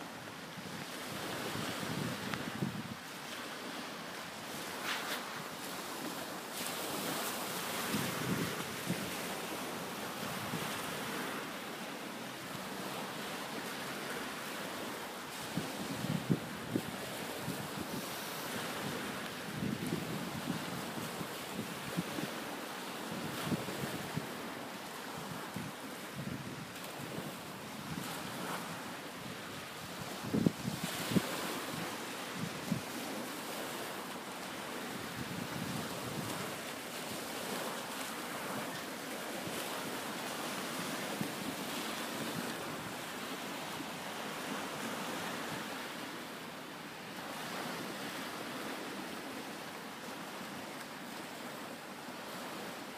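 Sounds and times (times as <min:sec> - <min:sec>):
wind noise on microphone: 0:00.0 - 0:03.1, 0:03.7 - 0:11.4, 0:15.3 - 0:33.9, 0:34.7 - 0:37.7, 0:38.3 - 0:46.0
small waves on shingle beach: 0:00.0 - 0:52.9
wind buffeting microphone: 0:00.6 - 0:03.0, 0:15.5 - 0:22.4, 0:25.0 - 0:33.2.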